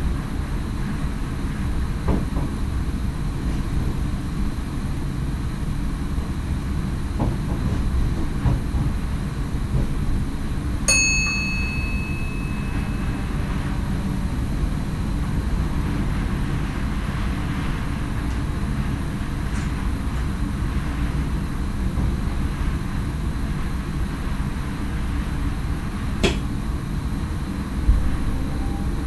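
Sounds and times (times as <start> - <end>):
electric train rumble: 0.0 - 29.0
bell-like chime: 10.9 - 13.4.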